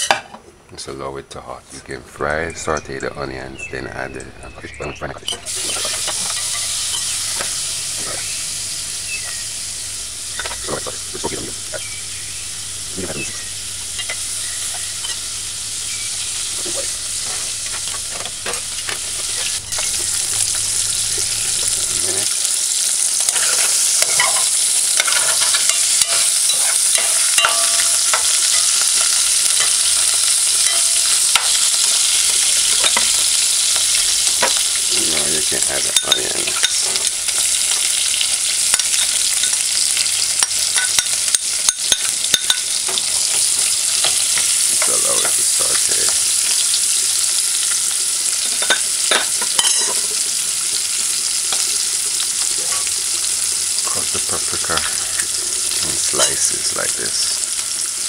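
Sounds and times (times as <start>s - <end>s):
food sizzling in hot oil: 2.3s - 58.0s
metal spoon scraping a pot: 23.2s - 29.8s.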